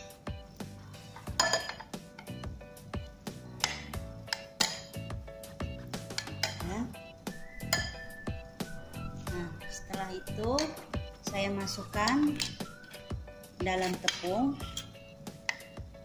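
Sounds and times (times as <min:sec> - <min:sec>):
background music: 0:00.0 - 0:16.0
metal tongs clinking on glass bowl: 0:01.3 - 0:01.9, 0:06.1 - 0:06.6, 0:07.7 - 0:08.0, 0:13.8 - 0:15.0.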